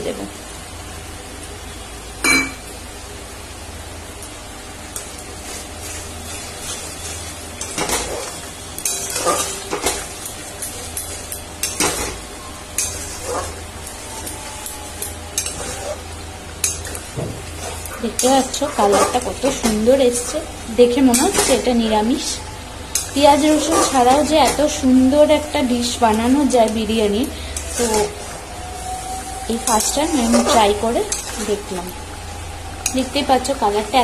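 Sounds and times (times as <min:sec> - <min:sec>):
food sizzling in a pan: 0:00.0 - 0:34.0
metal spatula scraping a pan: 0:05.4 - 0:13.6, 0:15.3 - 0:21.7, 0:22.9 - 0:24.9, 0:26.7 - 0:28.4, 0:29.0 - 0:31.6.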